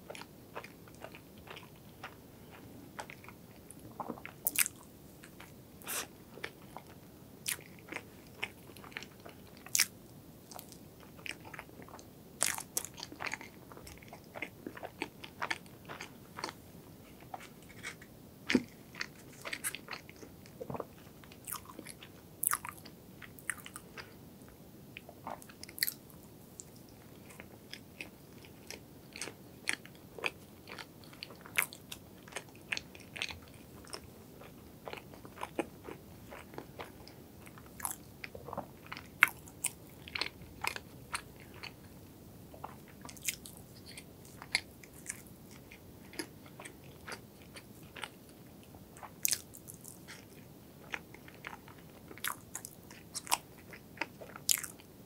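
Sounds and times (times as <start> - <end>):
person chewing soft cake: 0.0 - 26.0, 26.6 - 55.0.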